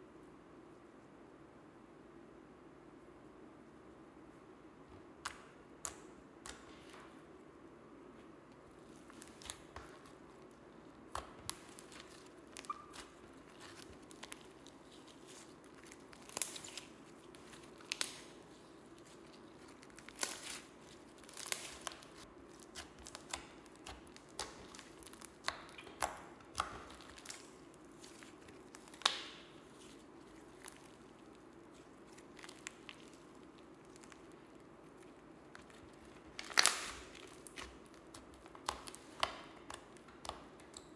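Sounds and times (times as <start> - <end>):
faint steady hum: 0.0 - 40.9
sticky slime pops and crackles: 11.1 - 18.3, 19.0 - 34.5, 35.5 - 40.9.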